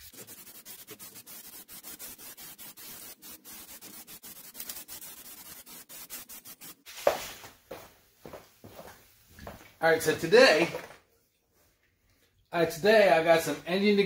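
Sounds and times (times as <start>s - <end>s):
aerosol spray paint hissing: 0.0s - 7.4s.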